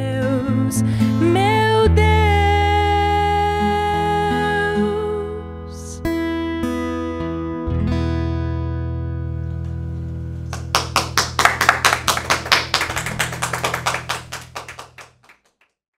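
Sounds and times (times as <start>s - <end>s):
people clapping: 10.4s - 15.8s.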